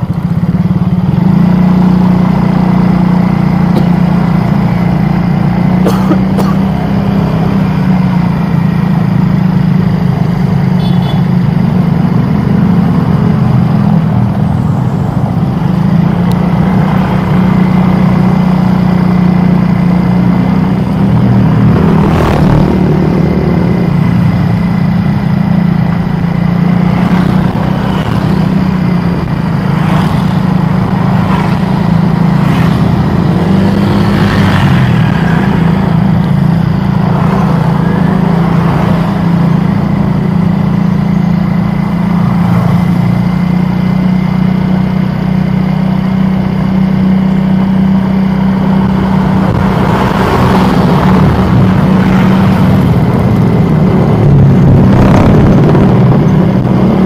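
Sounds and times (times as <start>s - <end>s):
street traffic: 0.0s - 57.0s
vehicle engine droning: 0.0s - 57.0s.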